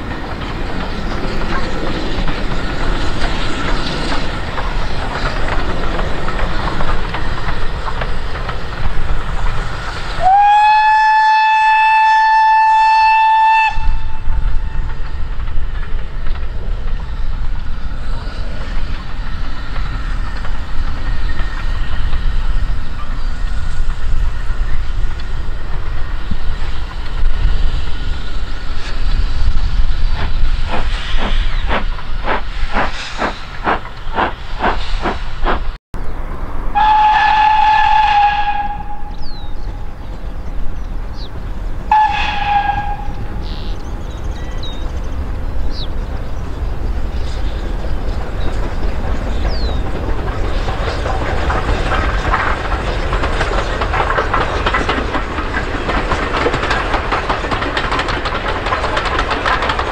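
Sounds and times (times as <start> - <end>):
rushing hiss: 0.0 - 11.0, 13.8 - 35.8
steam locomotive chuffing: 0.0 - 35.8, 36.8 - 59.9
rolling train noise: 0.0 - 59.9
steam whistle blasts: 10.2 - 14.3, 36.8 - 39.3, 41.9 - 43.3.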